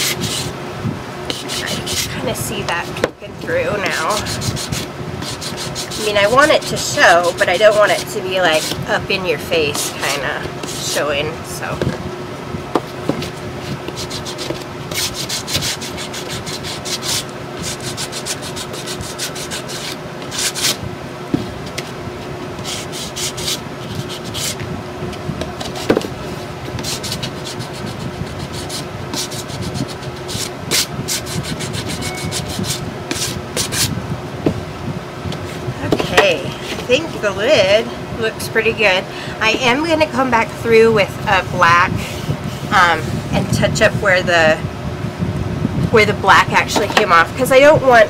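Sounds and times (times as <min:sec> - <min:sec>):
sanding block scratching on wood: 0:00.0 - 0:00.5, 0:01.3 - 0:02.2, 0:03.8 - 0:08.8, 0:13.9 - 0:20.8, 0:22.6 - 0:24.6, 0:26.8 - 0:33.9.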